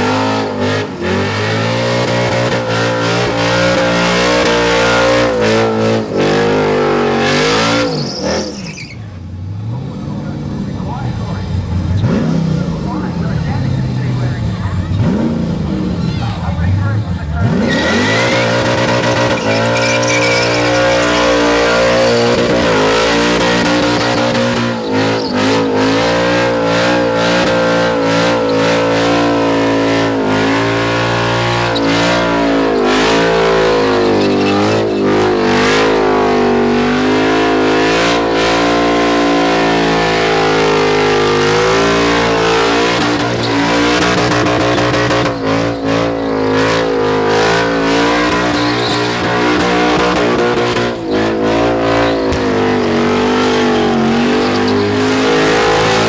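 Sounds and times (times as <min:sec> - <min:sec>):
car engine revving at high revs: 0:00.0 - 0:56.0
tyres spinning: 0:17.5 - 0:29.1.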